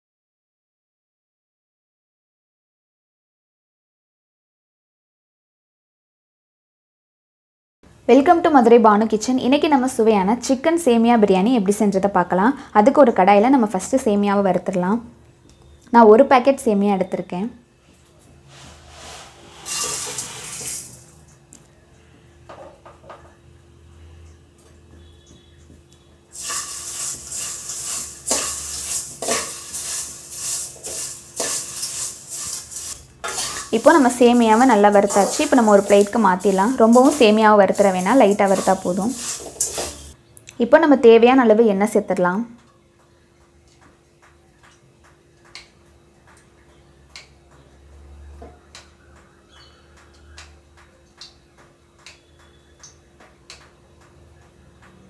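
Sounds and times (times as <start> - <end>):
ladle scraping vermicelli in metal pan: 18.5 - 21.1, 26.3 - 40.2.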